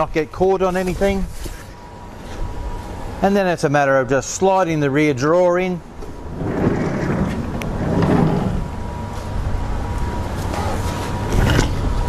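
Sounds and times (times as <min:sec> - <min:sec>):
drawer rumbling on runners: 0:06.3 - 0:08.8.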